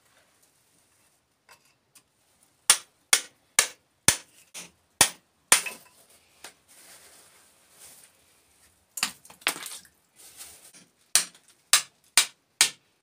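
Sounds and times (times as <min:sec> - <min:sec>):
hammer striking rock: 0:02.7 - 0:05.8, 0:11.2 - 0:12.8
rustle of soil and stones: 0:05.8 - 0:11.7.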